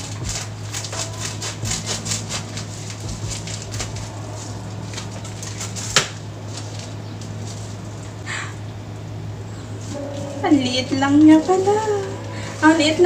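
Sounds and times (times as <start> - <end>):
scissors cutting plastic: 0.0 - 7.6
low steady hum: 0.0 - 13.0.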